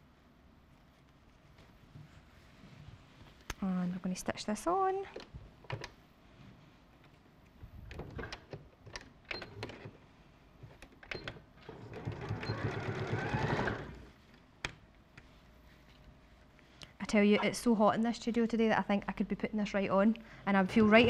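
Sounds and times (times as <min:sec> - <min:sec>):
sewing machine stitching: 0:11.1 - 0:14.1.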